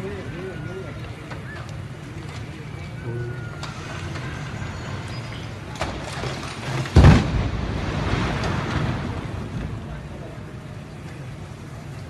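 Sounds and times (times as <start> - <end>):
rumble of falling debris: 3.5 - 12.0
minaret crashing to the ground: 5.8 - 9.4.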